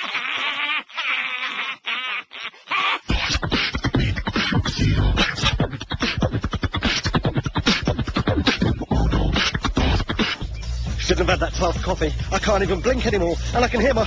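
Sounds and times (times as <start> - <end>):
person beatboxing: 3.0 - 14.0.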